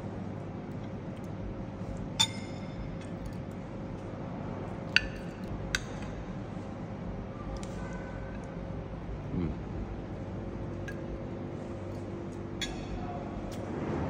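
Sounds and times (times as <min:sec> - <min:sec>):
steady background noise: 0:00.0 - 0:14.0
metal spoon clinking on ceramic plate: 0:02.2 - 0:02.8.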